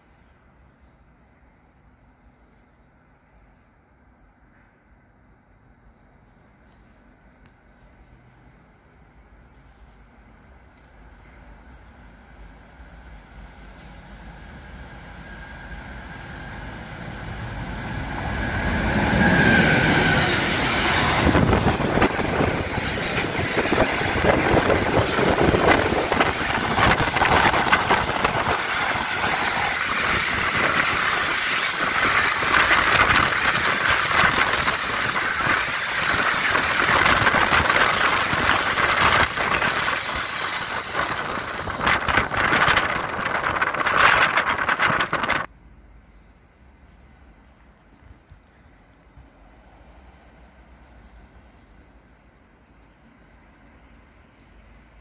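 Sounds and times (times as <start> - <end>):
freight train wheels clattering: 17.4 - 44.8.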